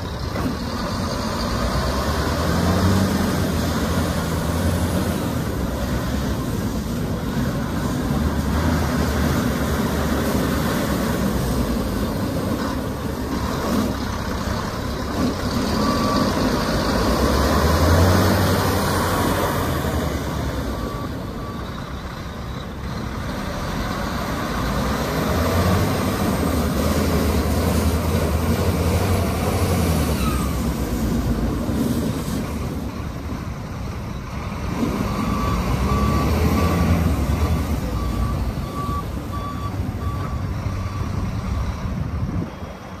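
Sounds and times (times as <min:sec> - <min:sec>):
truck diesel engine pulling: 0:00.0 - 0:43.0
reversing alarm beeping: 0:15.6 - 0:22.8, 0:34.1 - 0:41.3.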